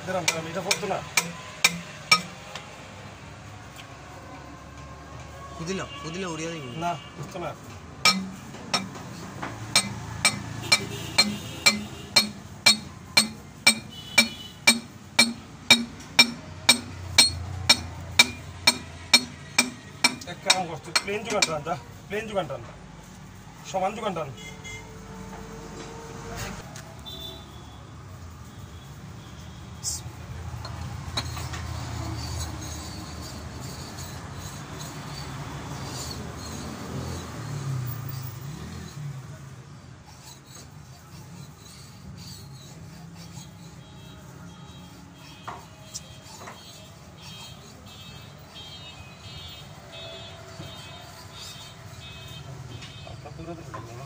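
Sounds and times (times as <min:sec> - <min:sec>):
hammer blows on steel: 0:08.0 - 0:21.6.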